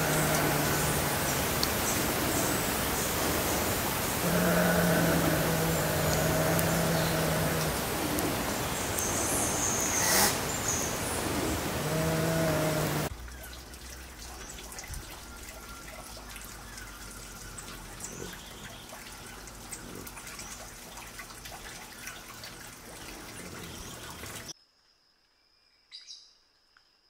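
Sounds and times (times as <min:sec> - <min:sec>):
drip-like ticks: 0:00.0 - 0:10.0, 0:11.9 - 0:24.5
steady background hiss: 0:00.0 - 0:13.1.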